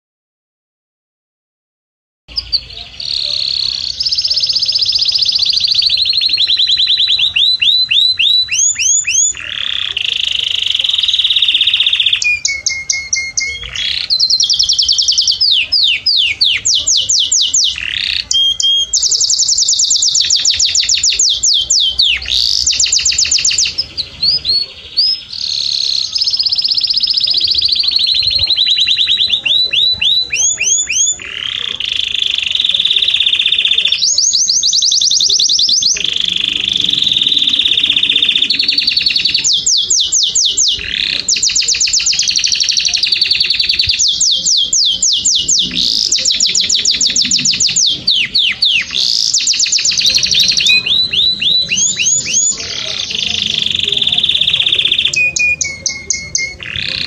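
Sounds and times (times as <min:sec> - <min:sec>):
canary singing: 0:02.3 - 0:57.0.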